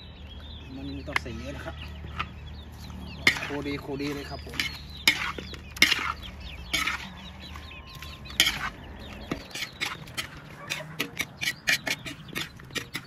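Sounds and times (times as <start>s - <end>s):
chickens clucking: 0.7s - 13.0s
metal spatula scraping a wok: 3.2s - 7.2s, 8.3s - 8.8s, 9.4s - 13.0s.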